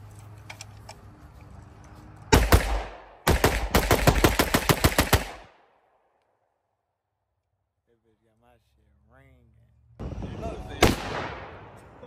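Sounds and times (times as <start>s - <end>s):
pistol firing rapidly: 2.4s - 5.5s.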